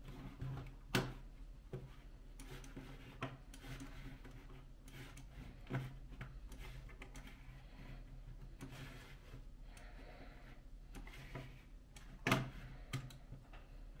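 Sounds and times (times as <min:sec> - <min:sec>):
low steady hum: 0:00.0 - 0:14.0
computer mouse clicking: 0:02.3 - 0:07.6, 0:10.9 - 0:13.3.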